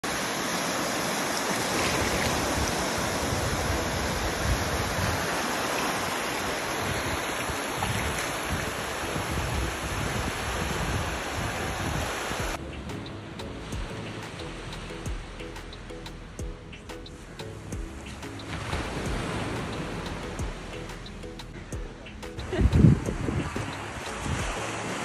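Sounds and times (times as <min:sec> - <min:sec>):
surf breaking on shore: 0:00.0 - 0:12.6, 0:18.4 - 0:20.7, 0:22.4 - 0:25.0
wind buffeting microphone: 0:01.6 - 0:14.1, 0:21.6 - 0:25.0.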